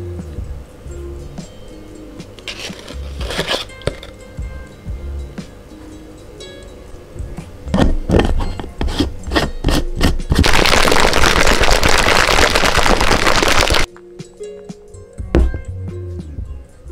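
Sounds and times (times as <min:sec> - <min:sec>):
shaker cup rattling: 0:02.4 - 0:04.2, 0:07.8 - 0:13.9.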